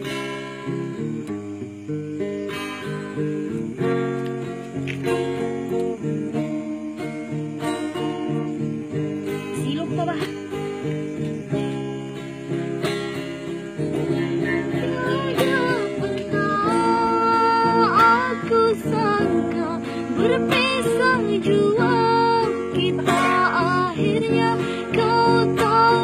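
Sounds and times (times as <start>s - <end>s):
acoustic guitar strumming: 0.0s - 26.0s
young woman singing: 8.7s - 11.6s, 13.5s - 26.0s.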